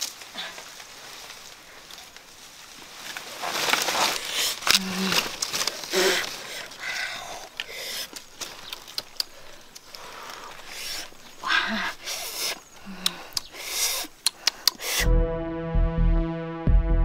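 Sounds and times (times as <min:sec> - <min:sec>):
dry leaves rustling and crackling: 0:00.0 - 0:12.9
small snaps and clicks: 0:07.5 - 0:10.1, 0:13.0 - 0:13.5, 0:14.2 - 0:14.8.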